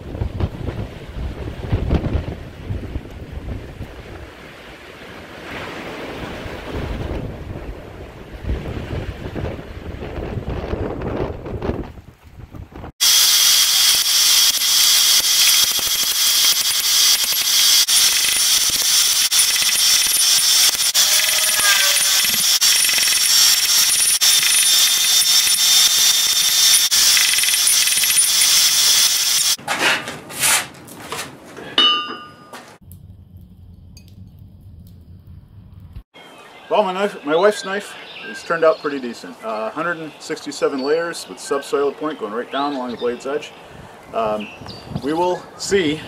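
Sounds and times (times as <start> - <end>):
hammer striking steel on anvil: 31.8 - 32.6.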